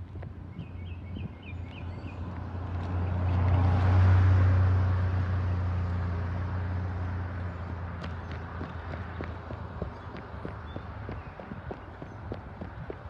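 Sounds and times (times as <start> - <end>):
car driving past: 2.0 - 11.7.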